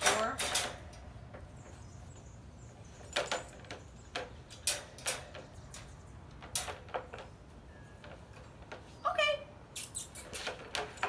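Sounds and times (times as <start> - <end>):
metal crate door clinking: 0.0 - 1.1, 3.0 - 7.2.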